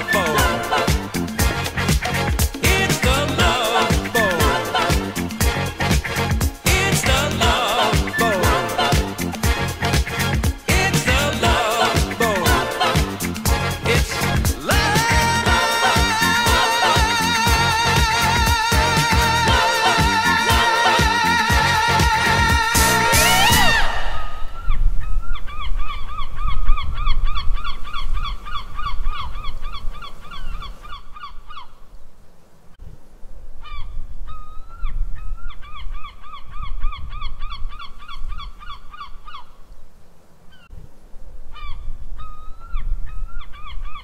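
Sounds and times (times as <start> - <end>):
music: 0.0 - 24.2.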